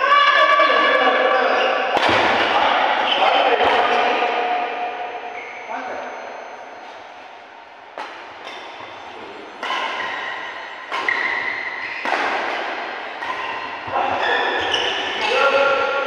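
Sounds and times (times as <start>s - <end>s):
racket hitting shuttlecock: 1.9s - 4.0s, 8.0s - 8.9s, 9.6s - 16.0s.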